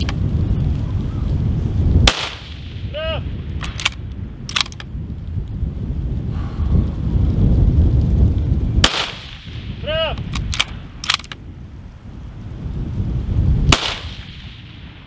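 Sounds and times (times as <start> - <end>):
rifle shots: 2.0 - 2.8, 8.8 - 11.4, 13.7 - 15.0
rifle bolt clicks: 3.6 - 4.9, 10.2 - 11.4.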